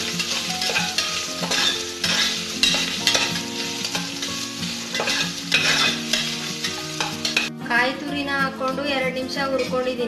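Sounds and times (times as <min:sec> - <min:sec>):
metal spatula scraping a pan: 0:00.0 - 0:07.5
food sizzling in a pan: 0:00.0 - 0:07.6.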